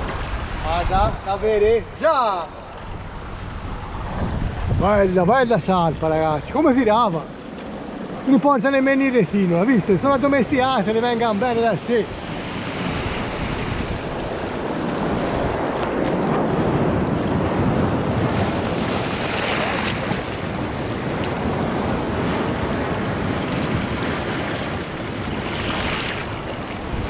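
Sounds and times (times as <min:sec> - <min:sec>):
wind buffeting microphone: 0:00.0 - 0:27.0
seawater washing over rocks: 0:18.6 - 0:27.0.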